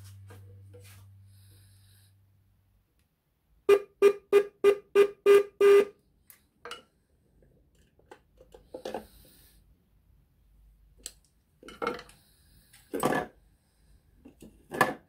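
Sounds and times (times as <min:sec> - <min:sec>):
motorcycle horn beeps: 0:03.7 - 0:05.9.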